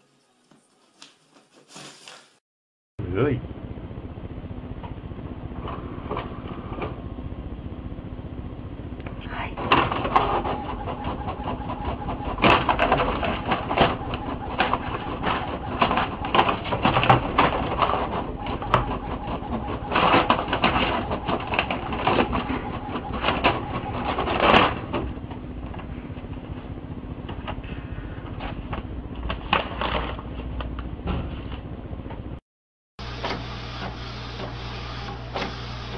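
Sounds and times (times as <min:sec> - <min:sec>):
inkjet printer clattering: 0:09.7 - 0:25.1.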